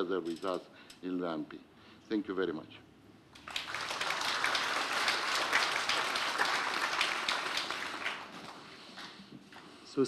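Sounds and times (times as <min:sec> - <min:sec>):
audience applauding: 0:03.4 - 0:09.1.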